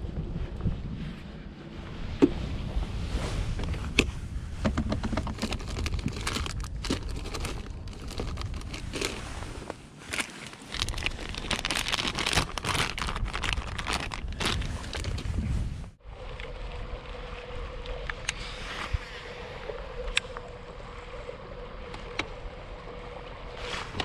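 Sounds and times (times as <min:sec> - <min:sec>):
plastic crinkling: 0:05.0 - 0:15.3.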